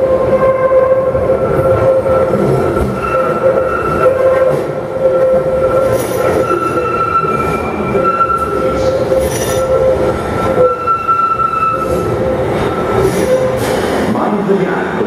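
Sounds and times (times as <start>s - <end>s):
train rumbling: 0.0s - 15.0s
train wheels squealing: 2.7s - 4.5s, 5.2s - 14.0s.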